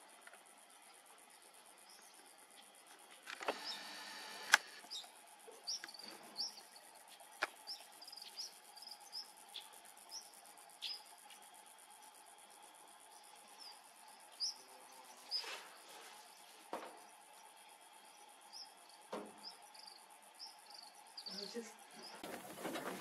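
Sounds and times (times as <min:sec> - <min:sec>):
crickets trilling: 0:00.0 - 0:23.0
bird chirping: 0:03.5 - 0:12.1, 0:13.2 - 0:15.6
sharp click: 0:04.4 - 0:04.7.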